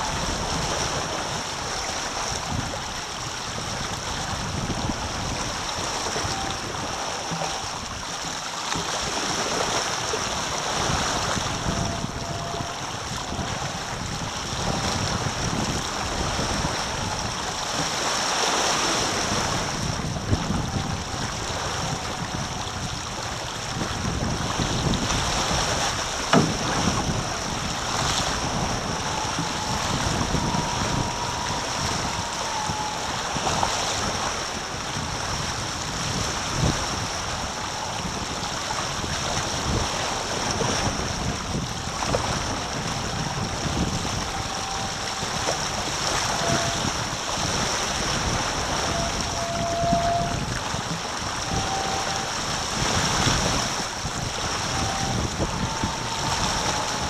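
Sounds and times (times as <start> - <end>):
water rushing along hulls: 0.0 - 57.0
wind buffeting microphone: 0.0 - 57.0
faint whistle: 28.4 - 34.5, 44.2 - 46.9, 48.8 - 50.5, 51.4 - 52.4, 54.6 - 57.0.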